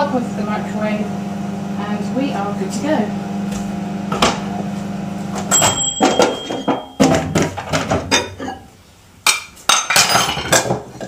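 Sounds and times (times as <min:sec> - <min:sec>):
microwave oven humming: 0:00.0 - 0:07.5.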